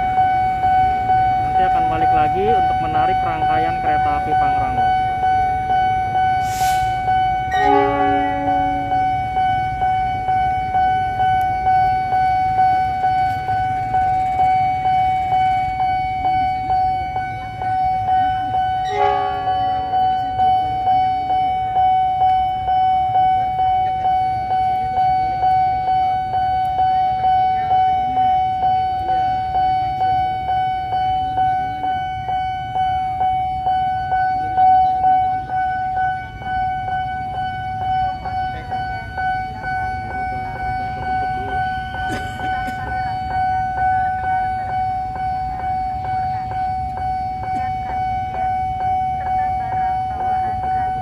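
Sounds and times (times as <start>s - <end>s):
level crossing alarm pulsing: 0.0s - 51.0s
low engine rumble: 0.0s - 51.0s
locomotive horn: 6.3s - 9.4s, 18.8s - 19.8s.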